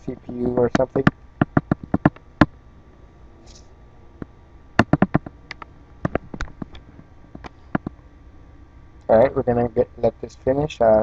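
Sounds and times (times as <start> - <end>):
sharp clicks and taps: 0.6 - 2.6, 4.8 - 8.0.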